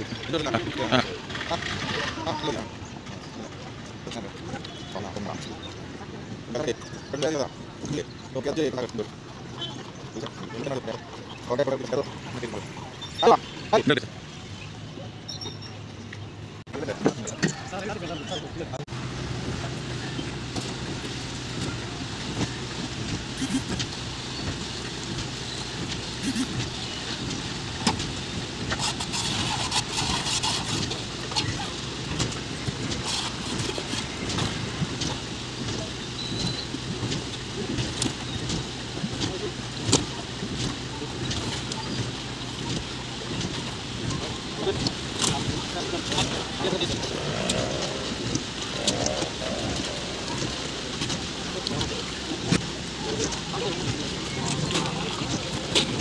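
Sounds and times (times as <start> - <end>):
pump engine droning: 18.9 - 56.0
knocks and splashes: 19.2 - 56.0
wet concrete pouring: 20.1 - 56.0.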